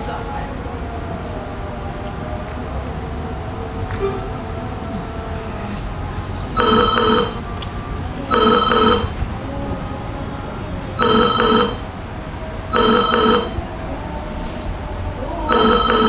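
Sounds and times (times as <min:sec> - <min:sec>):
telephone ringing: 0:06.6 - 0:07.4, 0:08.3 - 0:09.2, 0:11.0 - 0:11.9, 0:12.7 - 0:13.6, 0:15.5 - 0:16.0.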